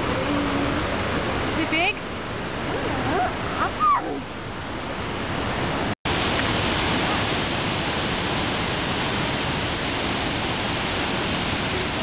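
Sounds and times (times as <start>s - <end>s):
waterfall crashing onto rocks: 6.1s - 12.0s.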